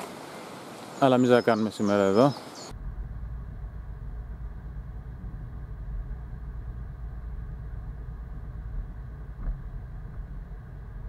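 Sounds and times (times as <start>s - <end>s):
road noise inside cabin: 2.7s - 11.0s
van engine rumble: 2.7s - 11.0s.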